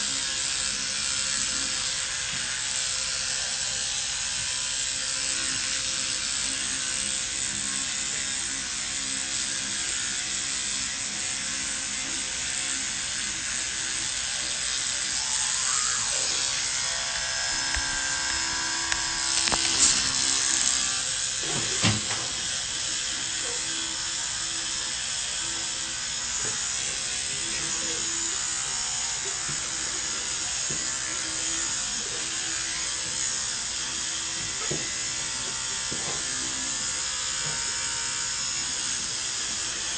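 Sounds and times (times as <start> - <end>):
electric toothbrush buzzing: 0.0 - 39.9
wet scrubbing against teeth: 15.2 - 20.9.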